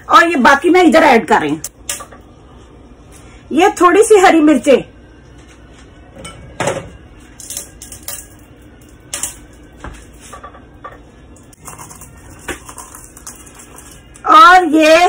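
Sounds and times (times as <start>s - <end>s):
dishes and utensils clinking: 6.2s - 14.2s.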